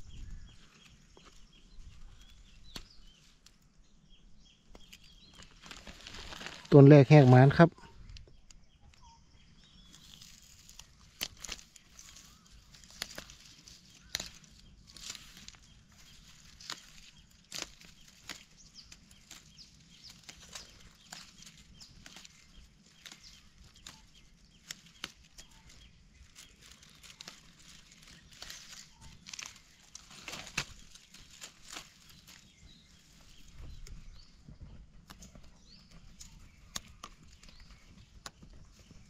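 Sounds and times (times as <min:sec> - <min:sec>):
dry leaves and twigs crackling: 0:00.0 - 0:39.0
small twig snaps: 0:09.9 - 0:25.6, 0:26.3 - 0:32.4, 0:36.2 - 0:37.6.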